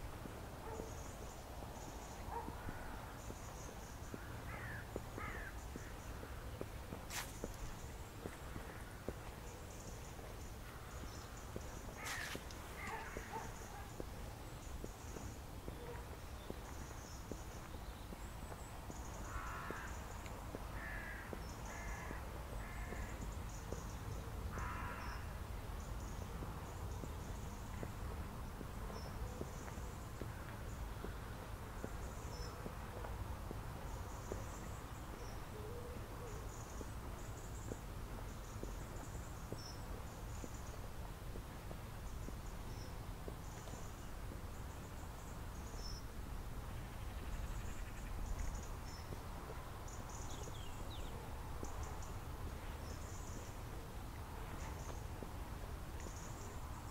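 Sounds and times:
louder lower bird calls: 0:20.8 - 0:23.2.

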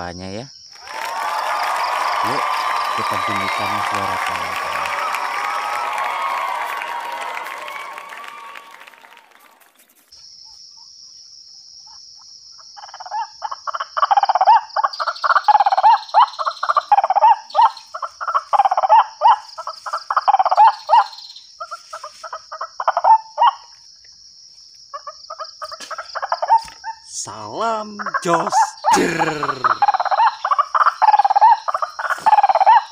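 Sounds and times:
bird croaking calls from loudspeaker: 0:27.1 - 0:32.9.

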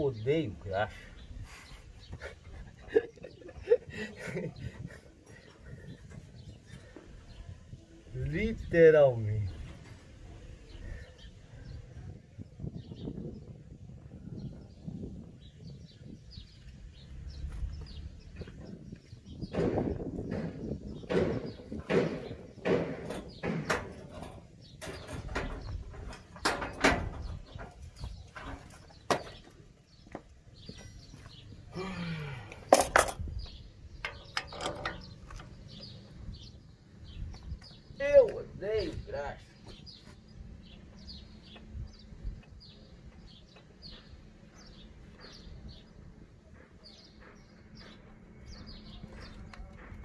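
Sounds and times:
small birds chirping: 0:00.0 - 0:50.0
dull low thumps: 0:12.4 - 0:23.7
metal parts knocking and clunking: 0:19.5 - 0:29.6, 0:32.7 - 0:36.0.

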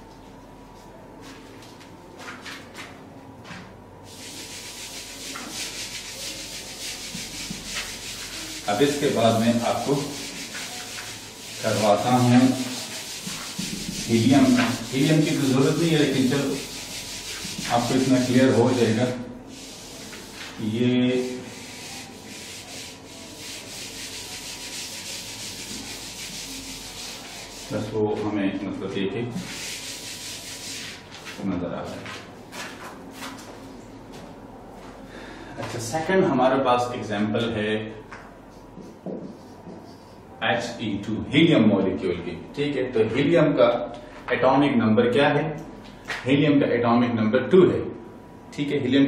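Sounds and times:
eraser scrubbing whiteboard: 0:04.1 - 0:28.2, 0:29.3 - 0:31.4.

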